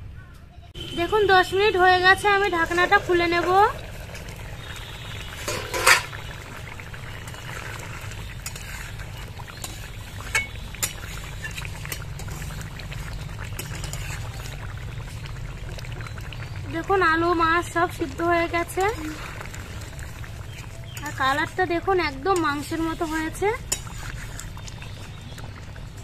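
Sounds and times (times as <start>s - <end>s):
thick curry bubbling: 0.8s - 26.0s
metal ladle scraping pot: 1.8s - 6.5s, 7.2s - 12.6s, 13.5s - 14.6s, 18.6s - 24.7s
metal lid clanking: 5.4s - 6.2s.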